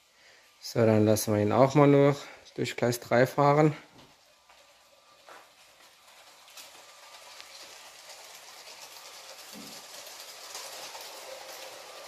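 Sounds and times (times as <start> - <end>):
toy train wheels clattering on track: 4.1 - 12.0.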